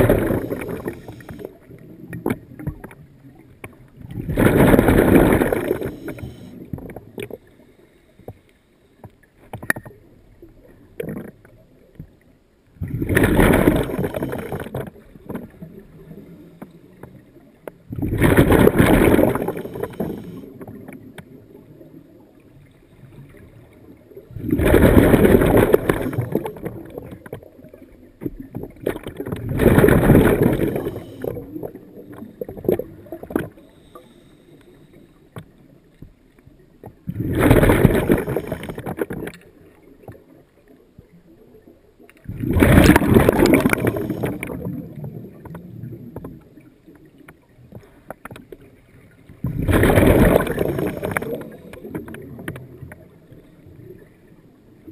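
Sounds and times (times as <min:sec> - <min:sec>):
underwater exhaust bubbles gurgling: 0:00.0 - 0:54.9
faint hiss: 0:33.5 - 0:35.8.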